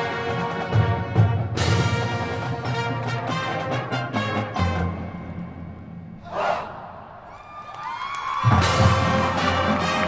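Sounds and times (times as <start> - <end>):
marching band chord: 8.6 - 10.0.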